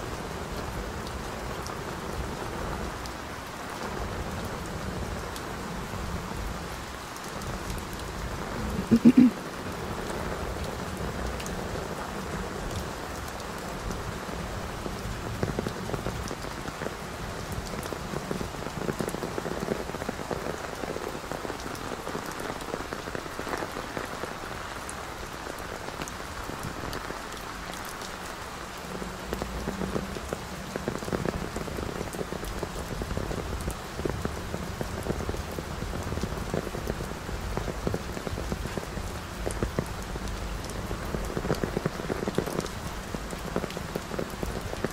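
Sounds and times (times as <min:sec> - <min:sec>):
rain falling: 0:00.0 - 0:44.9
raindrops ticking: 0:07.1 - 0:09.4, 0:12.4 - 0:44.9.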